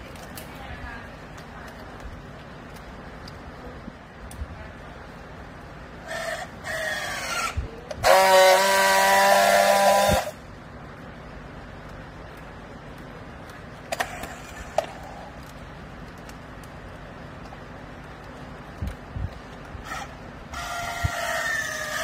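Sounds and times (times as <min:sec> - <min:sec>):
strapping tool motor whine: 0:06.0 - 0:10.4
strapping tool welding buzz: 0:06.0 - 0:10.4.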